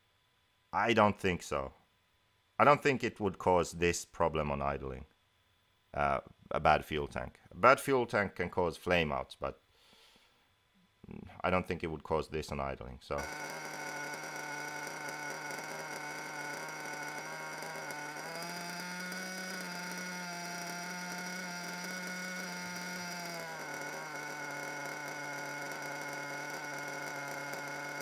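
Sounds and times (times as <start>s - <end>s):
model nitro engine idling: 13.2s - 28.0s.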